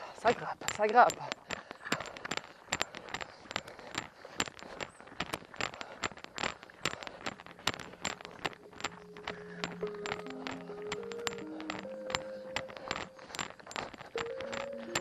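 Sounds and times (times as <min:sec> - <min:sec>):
footsteps crunching on stony track: 0:00.0 - 0:15.0
rattle of carried gear: 0:00.0 - 0:15.0
soft background music: 0:08.6 - 0:13.4, 0:14.2 - 0:15.0.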